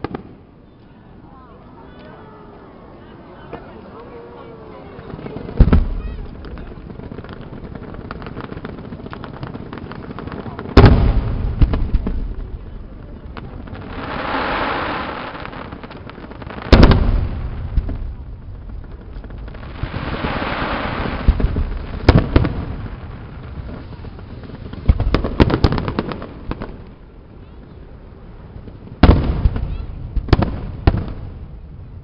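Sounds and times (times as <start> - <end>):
fireworks bangs and pops: 0.0 - 0.4, 4.8 - 32.0
firework shells booming: 5.0 - 26.9, 29.0 - 31.7.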